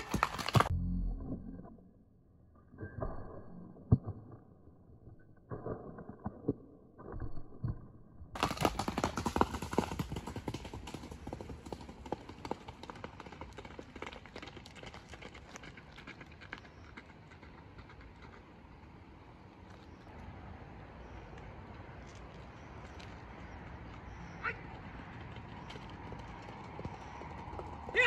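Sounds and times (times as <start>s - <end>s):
horse galloping on dirt: 0.0s - 0.8s, 8.3s - 20.2s, 21.0s - 28.0s.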